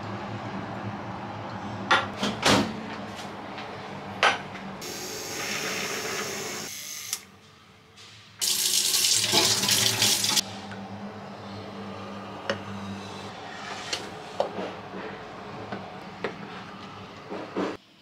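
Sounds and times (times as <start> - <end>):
water pouring: 8.4 - 10.4.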